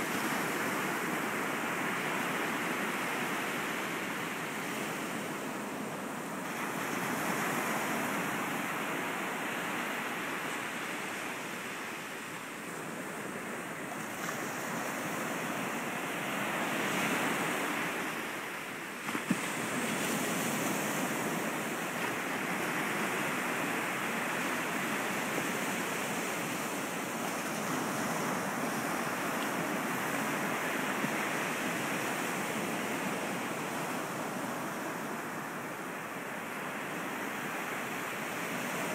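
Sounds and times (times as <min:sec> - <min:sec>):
small waves breaking on sand: 0:00.0 - 0:38.9.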